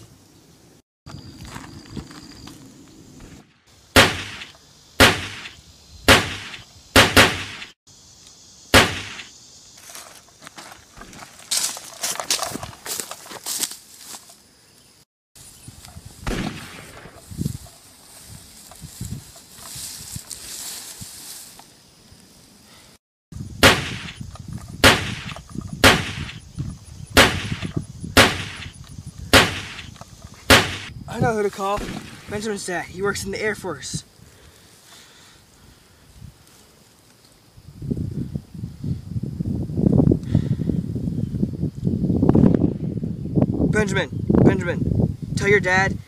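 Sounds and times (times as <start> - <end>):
echoing gunshots: 4.0 - 7.8, 8.7 - 9.3, 16.2 - 17.2, 23.6 - 24.2, 24.8 - 26.4, 27.2 - 28.7, 29.3 - 29.9, 30.5 - 30.9, 31.7 - 32.7.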